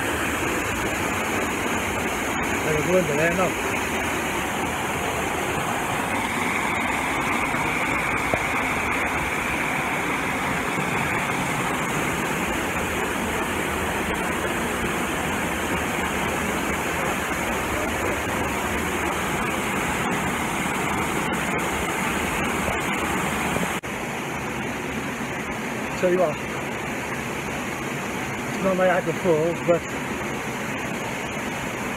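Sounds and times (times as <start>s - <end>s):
waterfall rushing onto rock: 0.0s - 31.9s.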